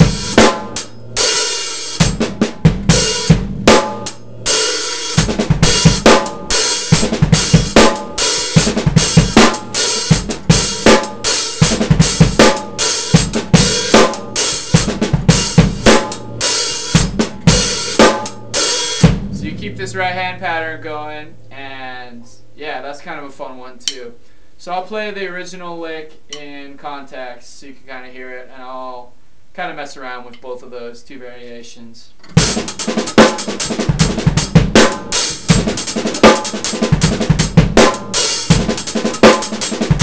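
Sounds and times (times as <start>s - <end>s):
drum kit groove: 0.0s - 21.2s, 32.3s - 40.0s.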